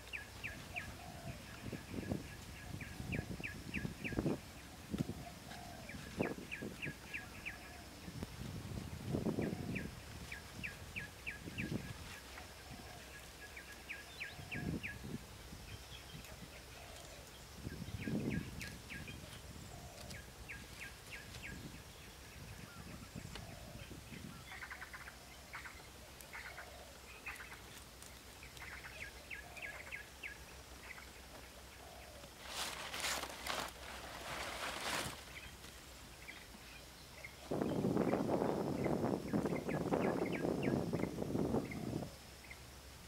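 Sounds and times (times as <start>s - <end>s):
small birds chirping: 0.0s - 42.9s
large leaves rustling: 0.0s - 43.0s.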